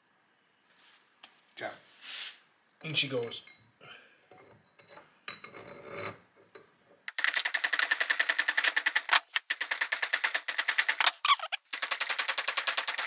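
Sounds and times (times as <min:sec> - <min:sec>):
socket ratchet clicking rapidly: 0:07.1 - 0:13.0.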